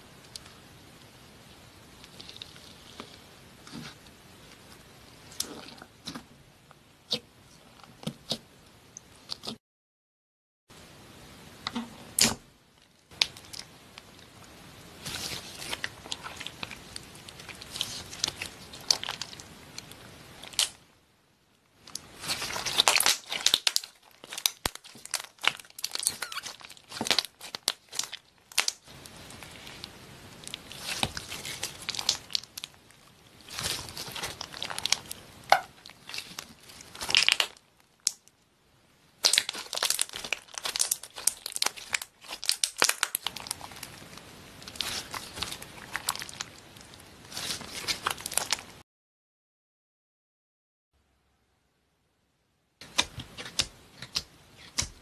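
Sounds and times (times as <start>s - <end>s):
slime squishing with sticky clicks: 13.1s - 14.2s, 15.1s - 20.8s, 21.8s - 38.4s, 39.2s - 48.6s.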